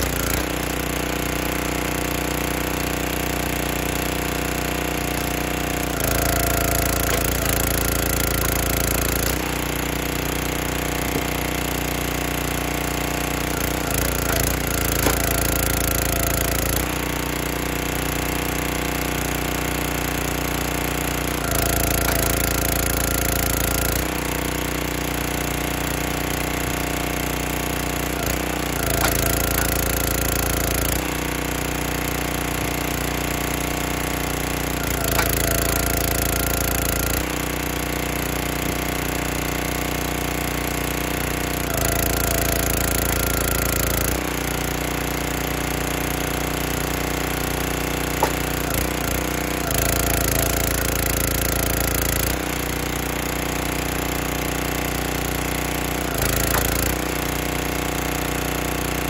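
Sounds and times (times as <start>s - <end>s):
log splitter engine running: 0.0s - 59.0s
wood splitting cracks: 13.6s - 16.6s, 28.2s - 30.7s, 34.9s - 36.4s, 48.1s - 49.2s.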